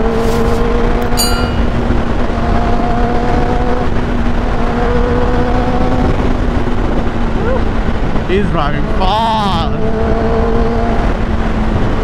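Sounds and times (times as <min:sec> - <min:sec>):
wind rumble on microphone: 0:00.0 - 0:12.0
clicks and bell chime effect: 0:01.0 - 0:01.8.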